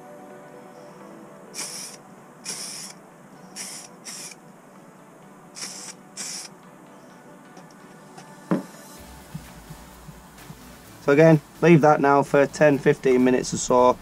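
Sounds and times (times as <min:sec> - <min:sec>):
aerosol spray can hissing: 0:01.6 - 0:03.0, 0:03.6 - 0:04.4, 0:05.6 - 0:06.5.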